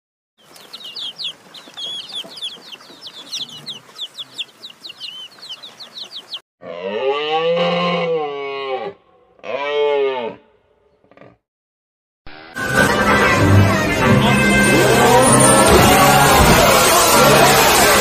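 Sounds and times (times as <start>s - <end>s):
chicks peeping: 0.4s - 6.4s
cow mooing: 6.6s - 10.5s.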